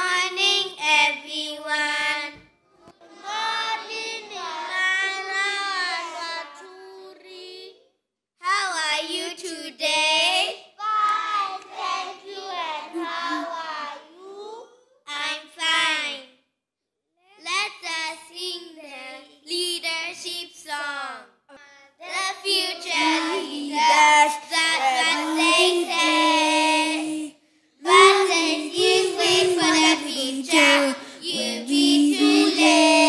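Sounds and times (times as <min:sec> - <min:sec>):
children singing: 0:00.0 - 0:01.2, 0:03.0 - 0:07.7, 0:10.8 - 0:13.9, 0:22.1 - 0:33.0.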